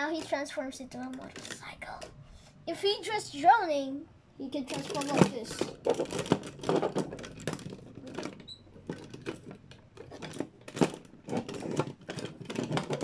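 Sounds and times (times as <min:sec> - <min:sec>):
plastic toy parts clicking: 0:01.0 - 0:01.7, 0:04.7 - 0:13.0.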